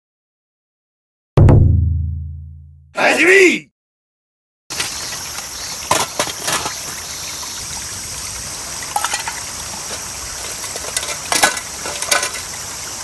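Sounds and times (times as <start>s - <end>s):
stream running: 4.7s - 13.0s
metal tin clinking: 8.9s - 9.5s, 10.4s - 12.5s.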